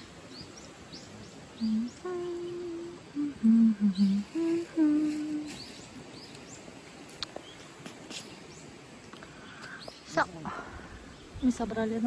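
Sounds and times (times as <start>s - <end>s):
faint bird chirps: 0.0s - 10.3s
person humming: 1.6s - 5.6s.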